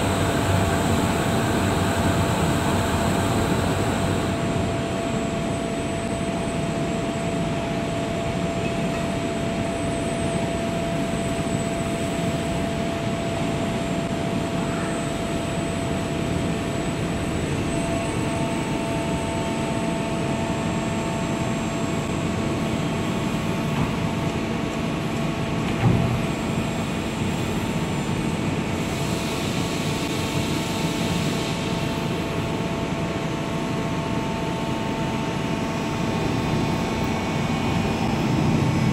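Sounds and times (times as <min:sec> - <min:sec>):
machine hum: 0:00.0 - 0:08.6, 0:30.3 - 0:38.9
high machine whine: 0:00.0 - 0:38.9.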